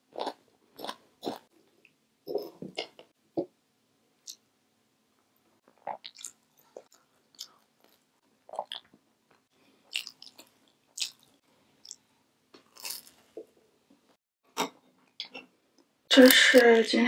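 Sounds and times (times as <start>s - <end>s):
crunching bites and chewing: 9.9s - 12.0s, 12.6s - 13.2s.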